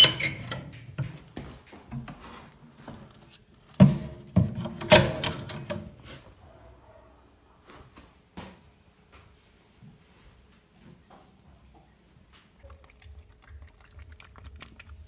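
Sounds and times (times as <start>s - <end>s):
metal clanks and rattles: 3.8s - 6.0s.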